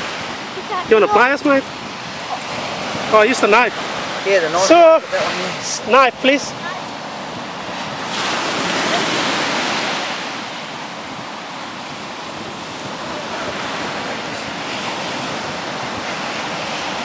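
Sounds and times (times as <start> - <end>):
ocean surf washing on beach: 0.0 - 17.0.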